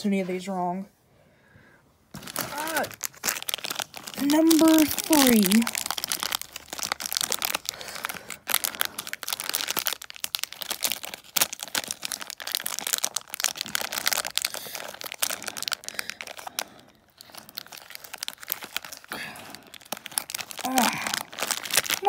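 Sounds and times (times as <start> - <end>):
foil packet crinkling: 2.1 - 22.0.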